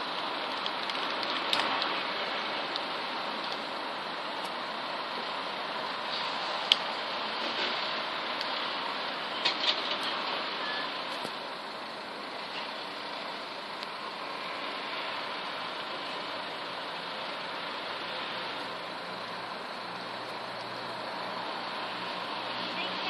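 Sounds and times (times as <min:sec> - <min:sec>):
background hiss and rumble: 0:00.0 - 0:23.0.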